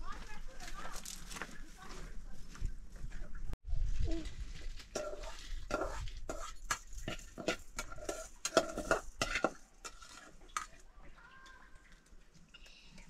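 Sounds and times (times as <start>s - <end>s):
utensil scraping metal pot: 4.8s - 10.9s.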